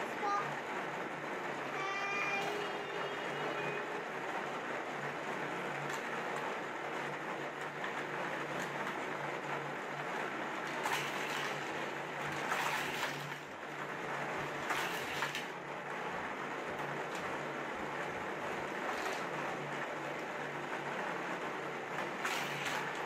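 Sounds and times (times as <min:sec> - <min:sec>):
toy cars clattering on plastic track: 0:10.6 - 0:13.5, 0:14.3 - 0:15.6, 0:18.8 - 0:19.4, 0:22.0 - 0:23.0
toy motor whirring: 0:10.6 - 0:13.5, 0:14.4 - 0:15.6, 0:18.9 - 0:19.3, 0:22.1 - 0:23.0.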